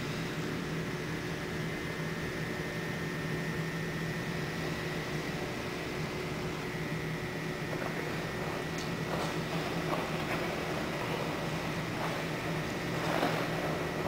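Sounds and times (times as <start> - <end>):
mechanical hum and hiss: 0.0 - 14.0.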